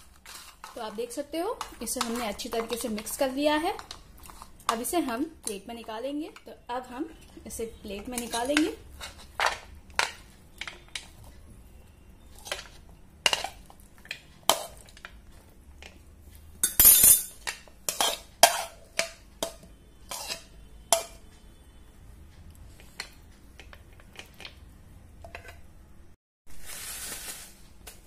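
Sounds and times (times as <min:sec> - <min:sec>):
metal spoon scraping a plate: 0:16.8 - 0:18.8, 0:20.0 - 0:21.2.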